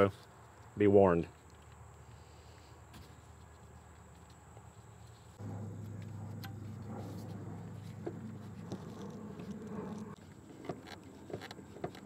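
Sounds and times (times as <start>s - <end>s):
steady low hum: 2.1s - 11.5s.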